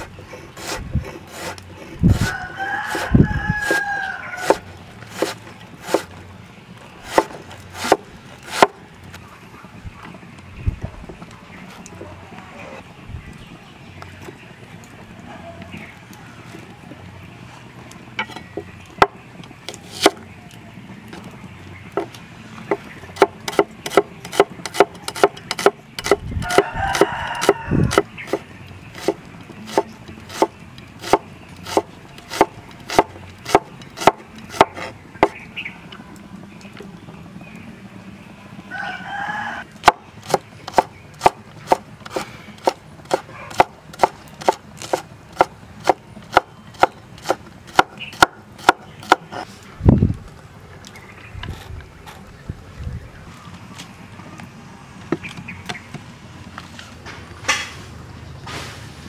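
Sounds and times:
rooster crowing: 2.1 - 4.7, 26.4 - 28.1, 38.6 - 39.7
cleaver chopping on wooden board: 4.4 - 6.1, 7.0 - 8.8, 22.7 - 28.4, 29.0 - 35.4, 39.8 - 49.4.

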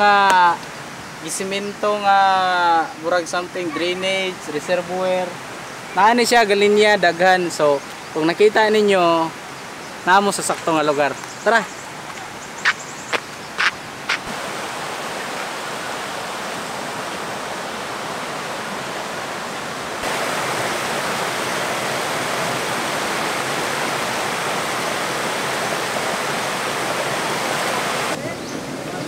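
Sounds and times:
river water rushing over rocks: 13.7 - 29.0.

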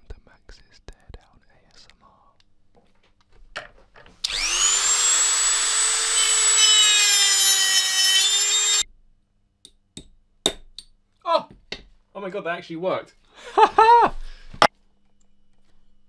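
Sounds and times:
rotary tool cutting whine: 4.2 - 8.8.

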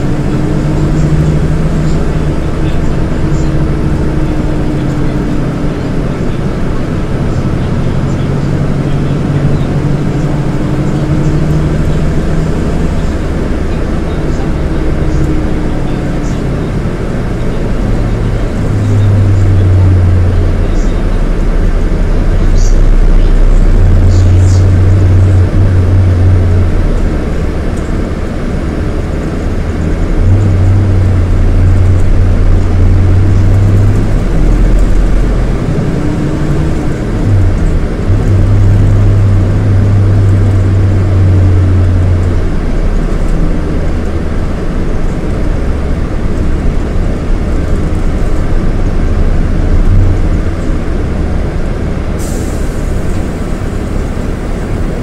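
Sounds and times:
diesel bus engine droning: 0.0 - 55.0.

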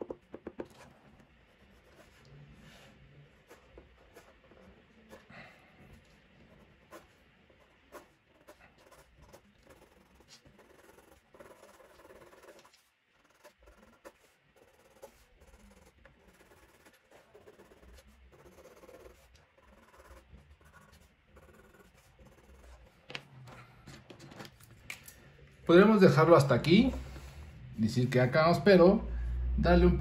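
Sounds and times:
colored pencil scratching paper: 0.0 - 5.3, 5.9 - 23.3.

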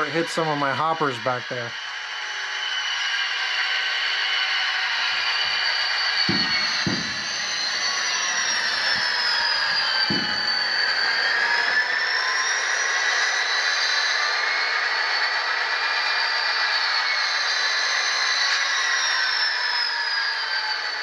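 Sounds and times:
high whine: 0.0 - 16.1
model locomotive diesel engine sound: 0.0 - 21.0
low knock: 6.3 - 7.6, 10.1 - 10.5.

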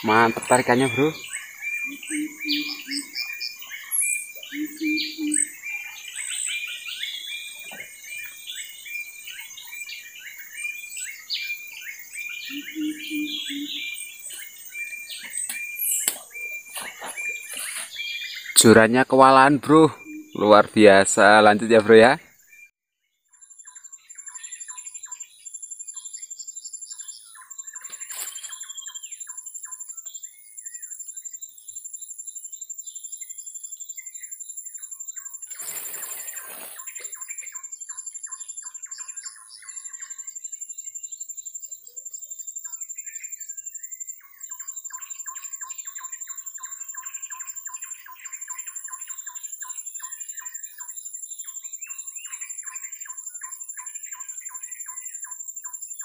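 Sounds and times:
birds chirping and calling: 0.0 - 22.7, 23.4 - 56.0
regular high pulsing: 1.8 - 3.2, 4.3 - 5.6
brief rustling: 35.5 - 37.0.

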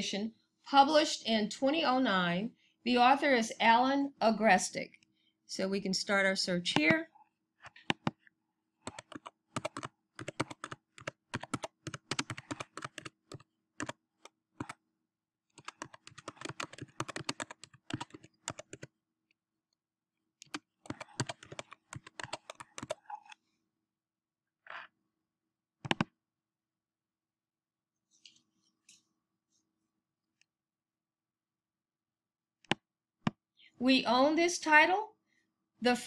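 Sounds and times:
keyboard key clicks: 25.8 - 26.1.

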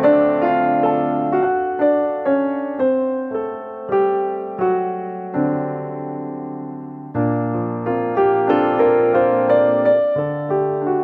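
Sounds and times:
slow piano melody: 0.0 - 11.0.

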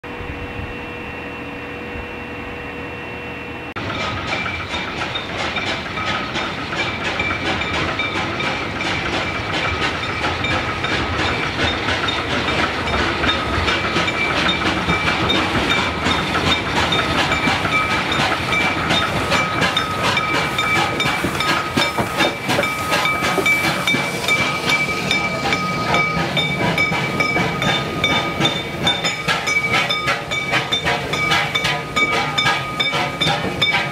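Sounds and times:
steam hiss: 3.8 - 33.9
train wheels rattling: 3.8 - 33.9
high squeal: 14.1 - 33.9.

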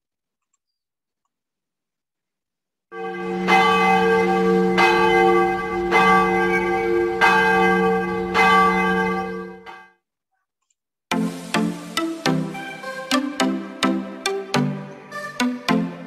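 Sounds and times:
large bell tolling: 3.0 - 9.8.

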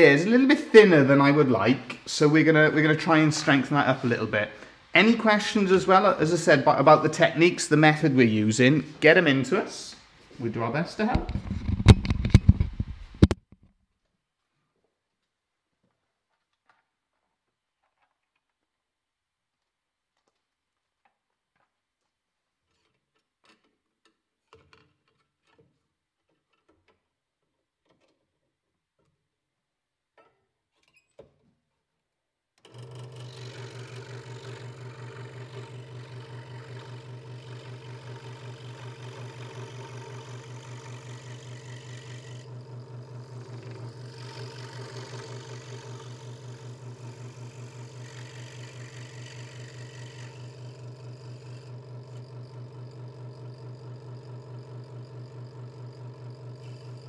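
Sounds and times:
scroll saw cutting wood: 32.6 - 57.0.

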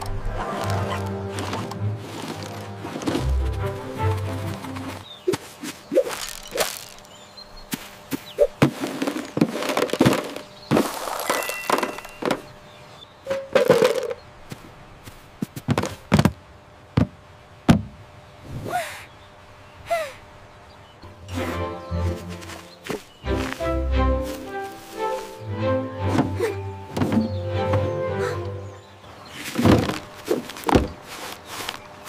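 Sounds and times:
cartoon thunks and knocks: 17.0 - 18.0.

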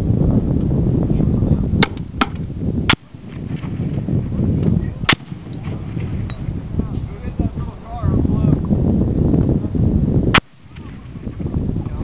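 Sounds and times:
wind buffeting microphone: 0.0 - 12.0
gunshots: 5.0 - 6.1, 10.3 - 11.2.

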